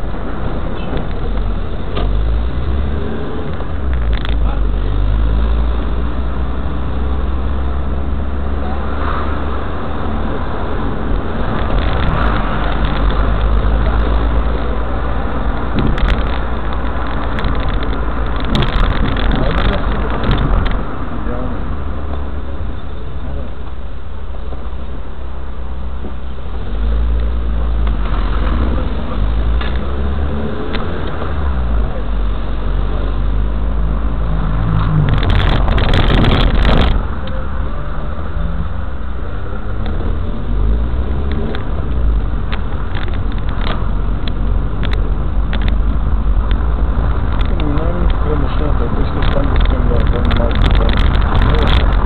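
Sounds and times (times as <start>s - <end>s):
car engine and road noise: 0.0s - 52.0s
sharp crackling clicks: 11.1s - 14.5s, 15.5s - 20.9s, 34.8s - 37.4s, 41.1s - 52.0s.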